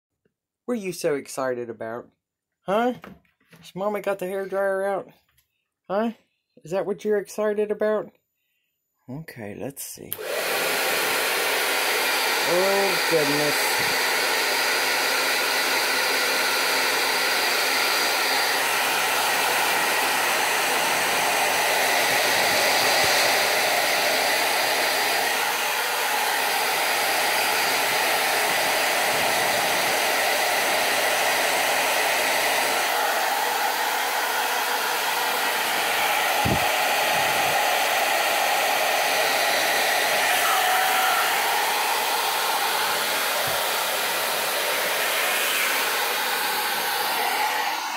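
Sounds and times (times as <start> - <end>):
hair dryer blowing air: 10.1 - 47.9.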